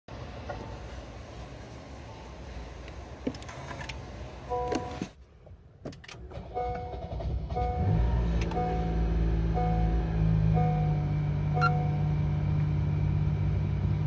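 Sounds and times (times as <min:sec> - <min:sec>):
low steady rumble: 0:00.1 - 0:14.0
short electronic beeps: 0:10.6 - 0:12.0.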